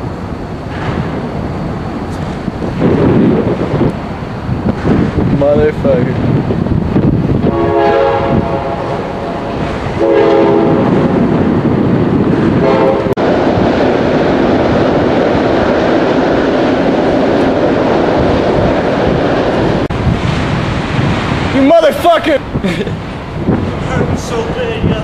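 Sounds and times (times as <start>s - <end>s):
loud rushing wind: 0.0s - 25.0s
horn blasts: 7.4s - 11.2s, 12.6s - 13.2s.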